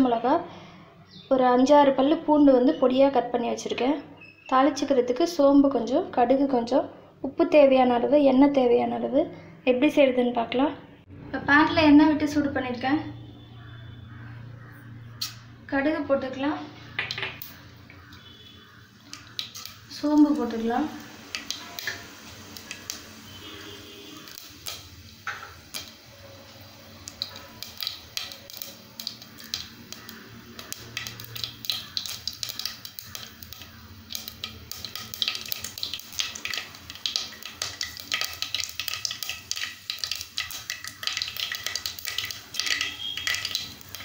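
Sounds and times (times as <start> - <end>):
seeds crackling and popping in oil: 15.1 - 15.4, 16.8 - 44.0.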